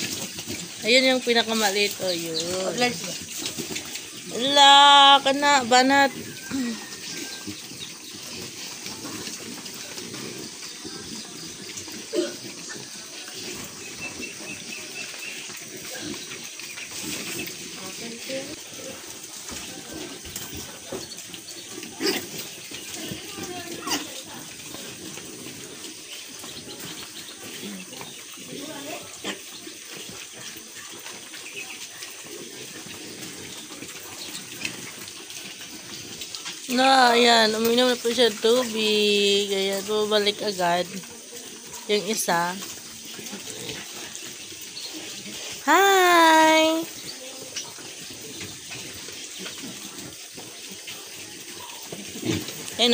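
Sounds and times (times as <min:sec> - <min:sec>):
piglets slurping and chomping: 0:00.0 - 0:52.9
piglet grunt: 0:12.1 - 0:12.4.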